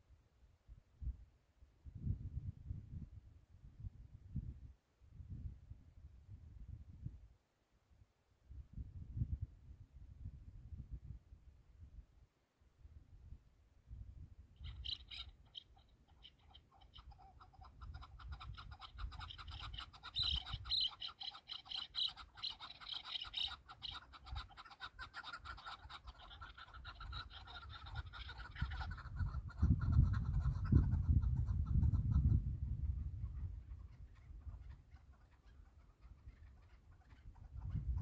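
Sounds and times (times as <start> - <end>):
partridge clucking calls: 14.6 - 38.0.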